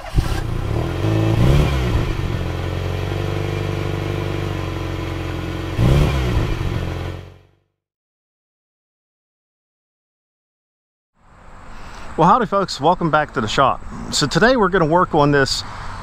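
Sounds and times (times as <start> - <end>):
car engine idling and revving: 0.0 - 7.6.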